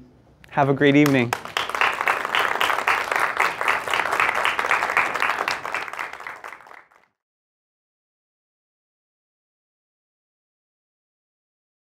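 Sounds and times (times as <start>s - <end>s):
audience applauding: 1.0s - 7.0s.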